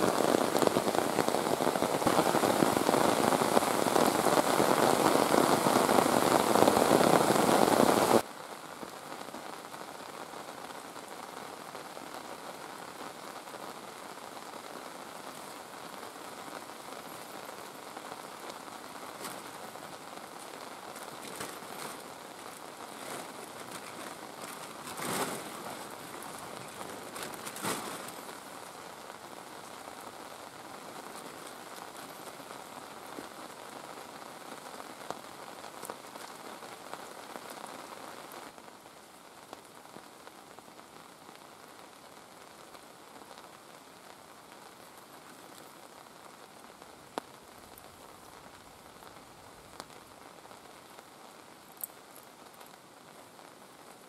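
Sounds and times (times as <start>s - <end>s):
heavy rain on foliage: 0.0s - 54.0s
rain pattering: 0.0s - 54.0s
short rustles: 22.9s - 28.3s.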